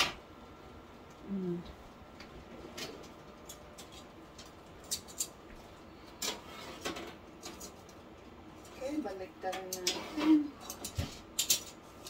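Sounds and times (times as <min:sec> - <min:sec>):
kitchen items clicking and knocking: 0:09.4 - 0:11.8.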